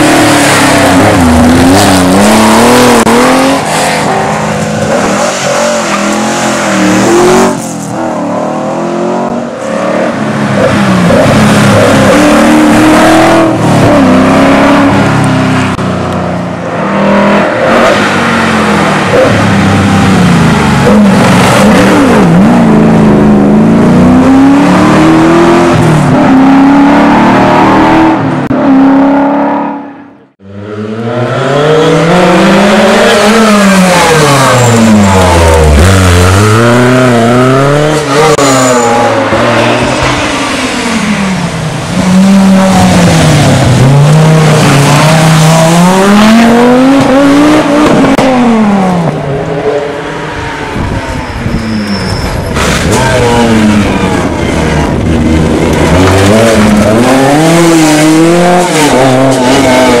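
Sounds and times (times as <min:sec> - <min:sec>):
rally car engines revving: 0:00.0 - 1:00.0.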